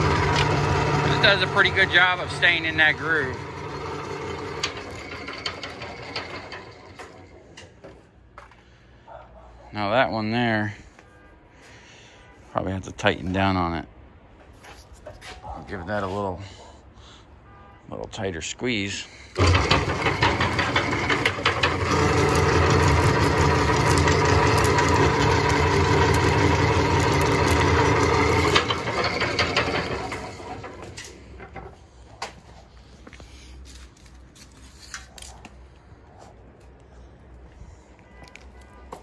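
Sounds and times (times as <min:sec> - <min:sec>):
electric motor humming and whirring: 0:00.0 - 0:07.0, 0:19.4 - 0:31.5.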